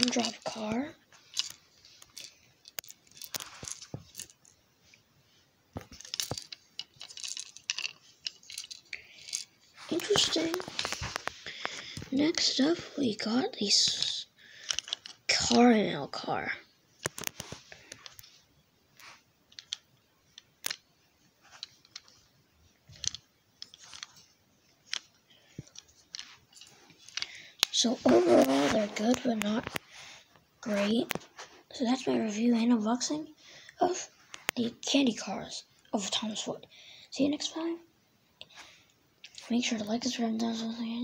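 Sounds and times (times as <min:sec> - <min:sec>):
crinkly plastic wrapping rustling: 0:00.0 - 0:04.5, 0:05.8 - 0:12.1, 0:17.0 - 0:18.4.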